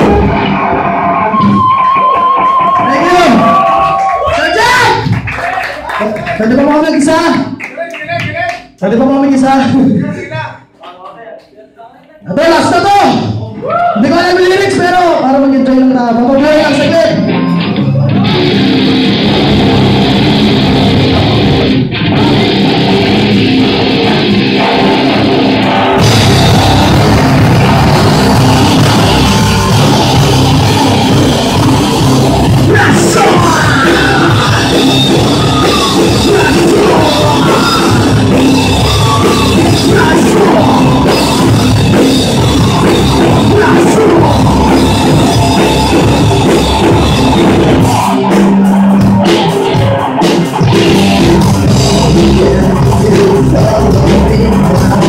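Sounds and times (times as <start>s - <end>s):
live rock band playing: 0.0s - 5.4s, 16.1s - 55.0s.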